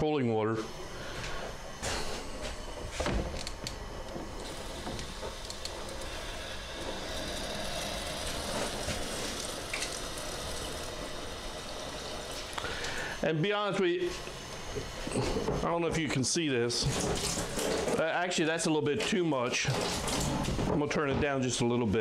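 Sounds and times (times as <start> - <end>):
water running into a sink: 4.4 - 13.1.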